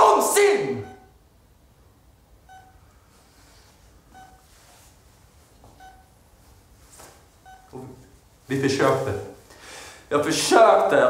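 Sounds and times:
heart monitor beeping: 0.8 - 1.2, 2.4 - 2.9, 4.0 - 4.5, 5.7 - 6.2, 7.4 - 7.9.

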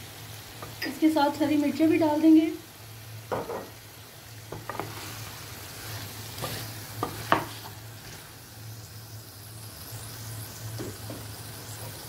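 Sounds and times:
curry sizzling in a pot: 0.0 - 12.0
wooden spoon stirring: 4.5 - 8.3.

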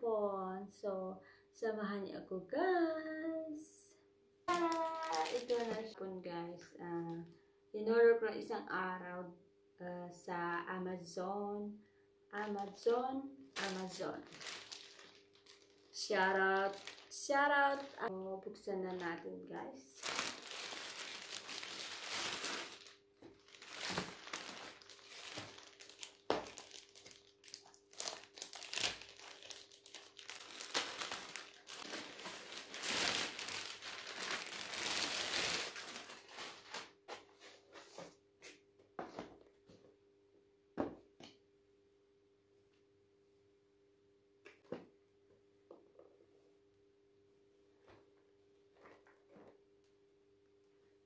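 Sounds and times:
faint steady hum: 0.0 - 51.0
plastic bag crinkling: 4.5 - 6.0, 13.6 - 18.1, 19.9 - 37.0.

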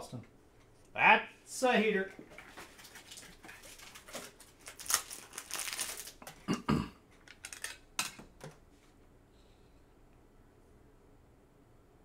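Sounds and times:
card wrapper crinkling: 2.5 - 6.3, 7.2 - 8.1.

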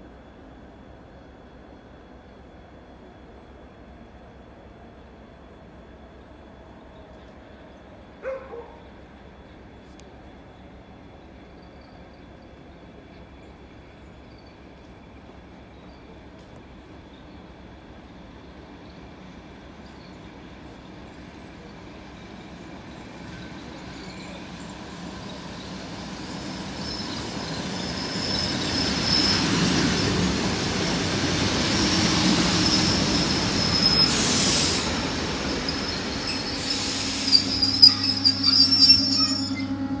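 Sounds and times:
train wheels rumbling: 20.5 - 40.0
high brake squeal: 32.0 - 40.0
short air hisses: 34.0 - 35.0, 36.4 - 38.4.

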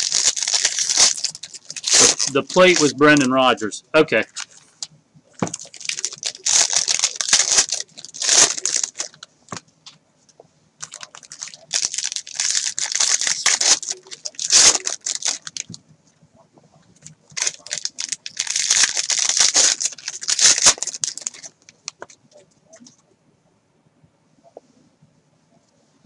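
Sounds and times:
foil wrappers tearing and crinkling: 0.0 - 3.3, 5.4 - 9.3, 10.8 - 15.8, 17.3 - 22.0.

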